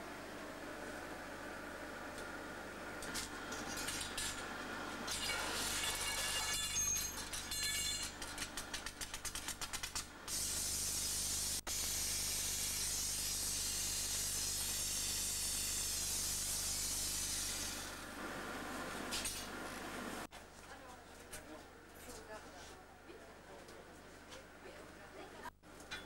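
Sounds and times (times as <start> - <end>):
rapid small clicks: 8.2 - 10.1.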